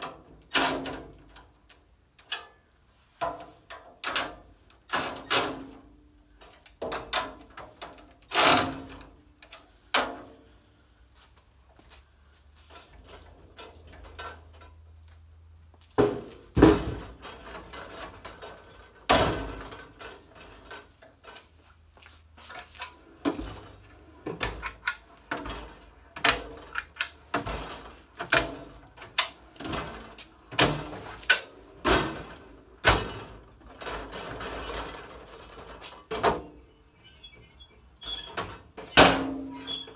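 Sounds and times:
metal knocks and clunks: 16.0s - 21.4s.

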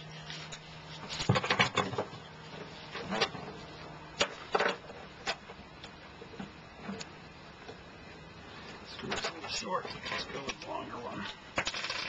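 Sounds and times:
small screws clicking and rattling: 11.6s - 12.0s.

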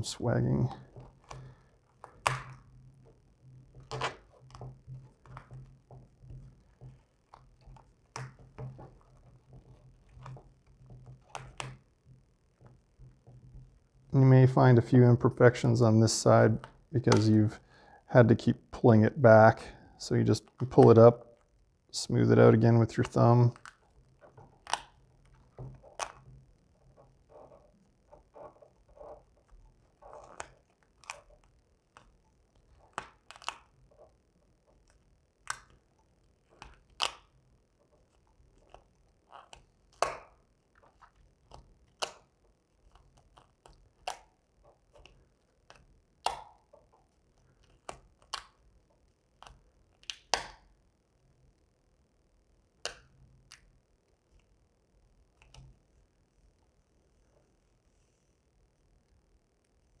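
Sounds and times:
vinyl film crackling and snapping: 0.6s - 13.8s, 22.6s - 50.6s.

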